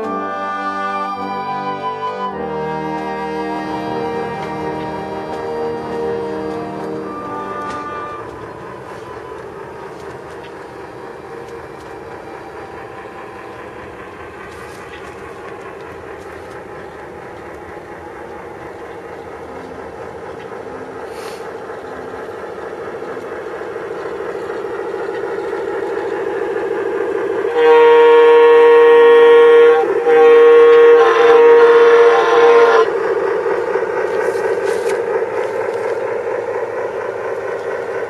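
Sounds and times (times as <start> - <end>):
diesel air horn blasts: 0.0 - 9.0, 27.5 - 32.9
diesel engine sound: 0.0 - 38.0.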